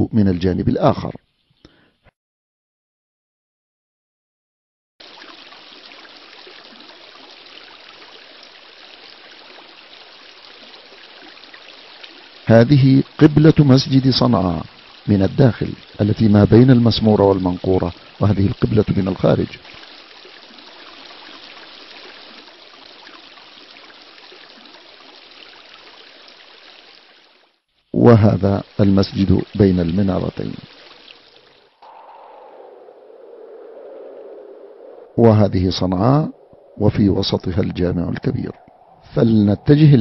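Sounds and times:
steady rushing noise: 31.7 - 40.0.

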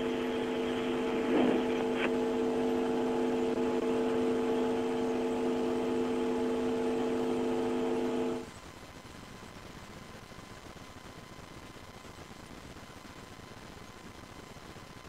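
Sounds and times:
electrical hum: 0.0 - 10.8.

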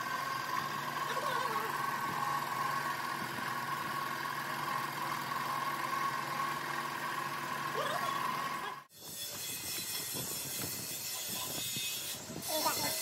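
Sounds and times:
machine humming: 0.0 - 8.9.

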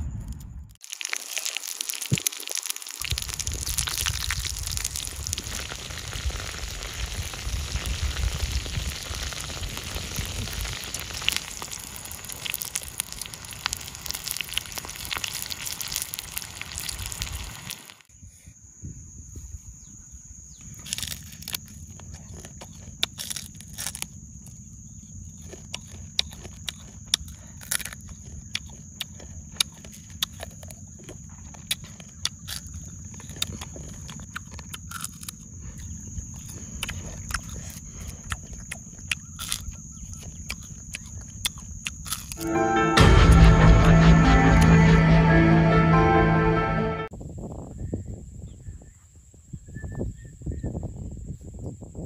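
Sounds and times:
crunching and chewing: 0.8 - 18.0, 20.6 - 42.4
high-pitched hum: 42.4 - 47.1.

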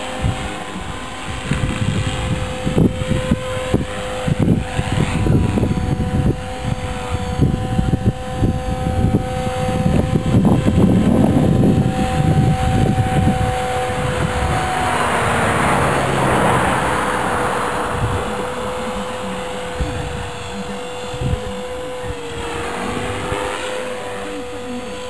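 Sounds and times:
model helicopter whine: 0.0 - 25.0
rushing rotor noise: 0.0 - 25.0
wind buffeting microphone: 0.0 - 25.0.

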